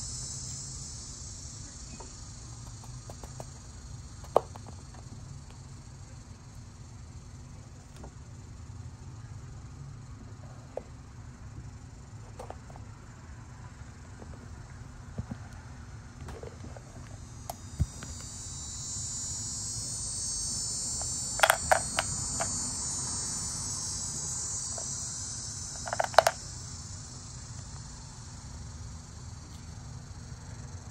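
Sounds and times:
high-pitched insect buzzing: 0.0s - 6.2s, 17.0s - 30.9s.

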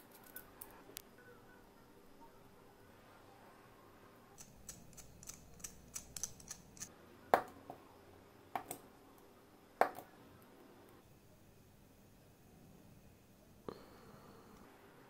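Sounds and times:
light sharp ticks of plastic parts: 4.4s - 6.9s.

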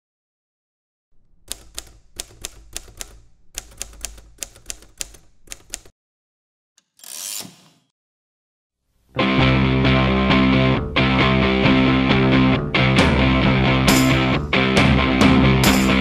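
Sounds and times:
typewriter keys clacking: 1.5s - 5.9s.

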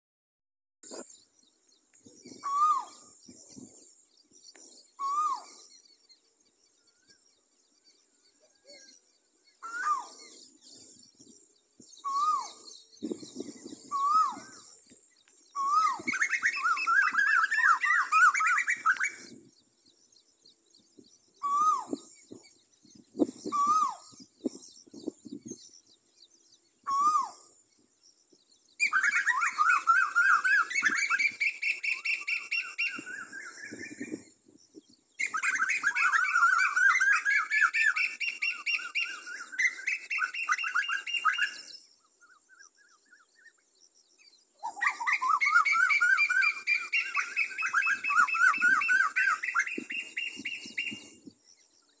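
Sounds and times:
bird calling shrill notes: 2.2s - 3.5s, 4.8s - 5.8s, 9.5s - 10.5s, 12.0s - 14.8s, 15.5s - 19.4s, 21.3s - 22.4s, 23.2s - 25.8s, 26.8s - 27.7s, 28.8s - 34.4s, 35.2s - 43.7s, 44.6s - 51.3s.

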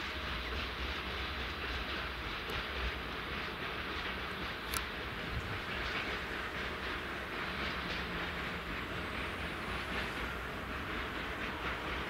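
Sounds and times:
train wheels rumbling on rails: 0.0s - 12.0s
faint irregular clicks: 1.9s - 5.0s.

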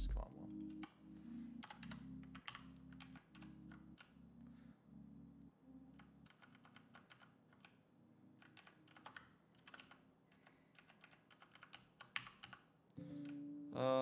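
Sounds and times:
faint keyboard typing: 0.0s - 4.5s, 5.7s - 13.4s.

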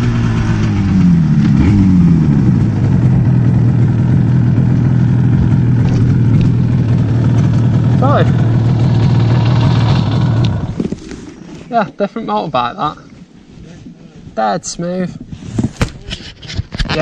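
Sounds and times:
motorcycle engine idling: 0.0s - 10.8s.

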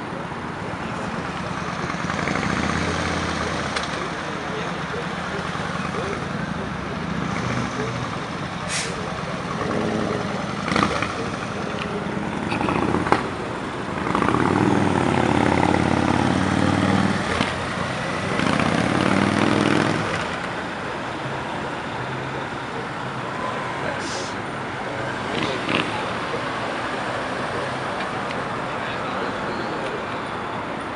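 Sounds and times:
motorcycle engines passing: 0.7s - 30.9s
motorcycle revving through gears: 1.8s - 4.0s, 5.4s - 8.4s, 9.1s - 20.6s, 25.2s - 26.1s.

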